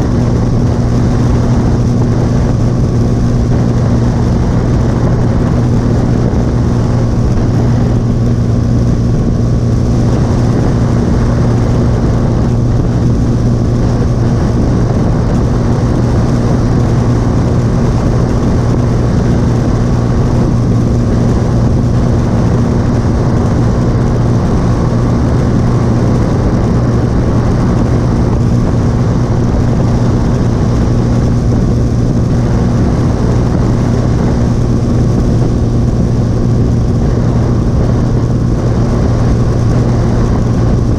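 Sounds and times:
motorcycle engine cruising: 0:00.0 - 0:40.9
wind and road rush: 0:00.0 - 0:40.9.

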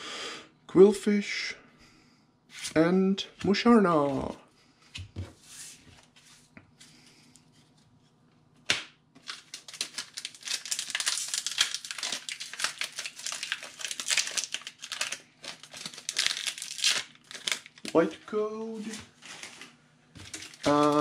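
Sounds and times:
foil wrappers crinkling and tearing: 0:09.2 - 0:18.2, 0:18.8 - 0:21.0.

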